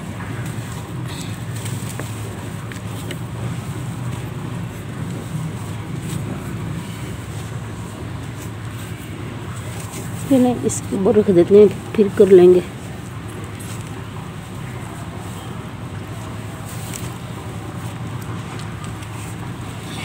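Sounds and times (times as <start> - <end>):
steady low rumble: 0.0 - 20.0
hands crumbling dry soil: 12.2 - 20.0.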